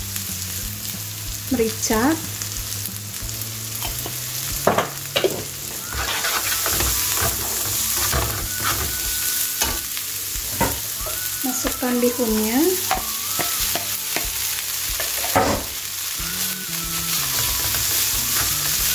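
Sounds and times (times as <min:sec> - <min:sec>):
cabbage sizzling in a frying pan: 0:00.0 - 0:18.9
wooden spatula scraping a pan: 0:05.2 - 0:09.7.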